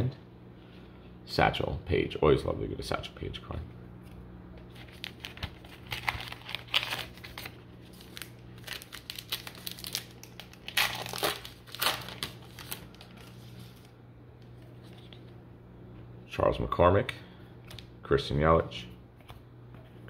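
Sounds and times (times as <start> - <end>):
plastic wrapper tearing and crinkling: 4.7 - 13.8.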